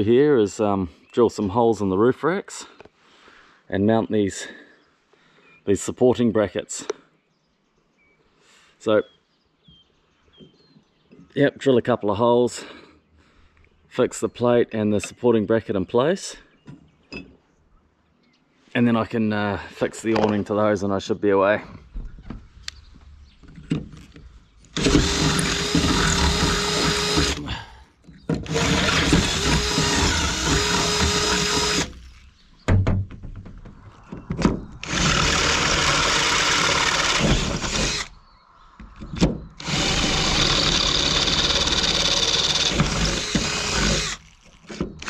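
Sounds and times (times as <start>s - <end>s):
cordless drill boring through metal: 24.7s - 27.6s, 28.3s - 32.2s, 34.8s - 38.1s, 39.6s - 45.0s.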